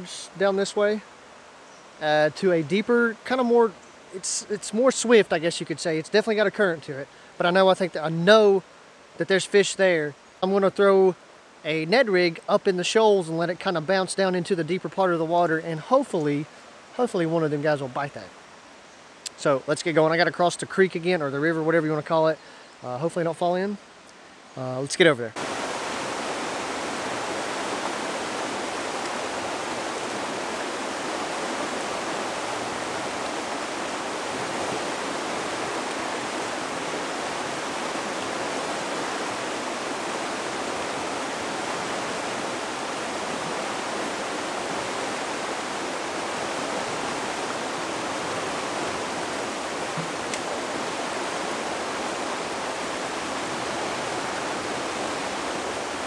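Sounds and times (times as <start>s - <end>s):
river water rushing over rocks: 25.4s - 56.0s.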